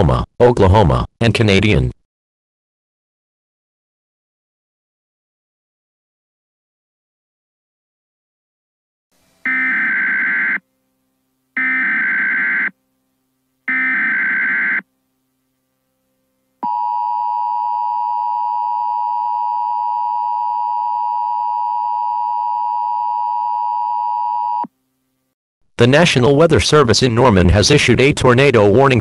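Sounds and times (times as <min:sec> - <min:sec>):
two-tone alarm: 0:09.4 - 0:10.6, 0:11.6 - 0:12.8, 0:13.7 - 0:14.8.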